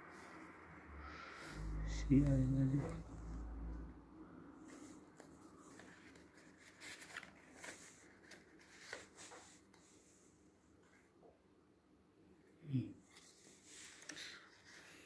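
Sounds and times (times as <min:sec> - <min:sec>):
paper card rustling and crinkling: 0:04.6 - 0:10.1, 0:13.1 - 0:15.0.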